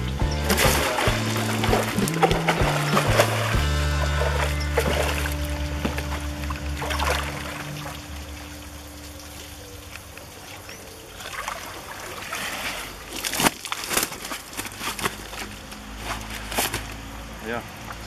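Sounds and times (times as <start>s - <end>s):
sharp loud splashes: 0.0s - 8.2s
water pouring and splashing: 0.0s - 17.1s
water sloshing in plastic tank: 0.0s - 17.2s.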